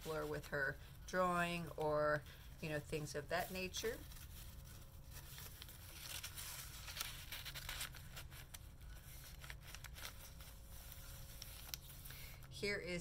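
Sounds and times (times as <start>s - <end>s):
paper rustling and crinkling: 3.0s - 12.5s.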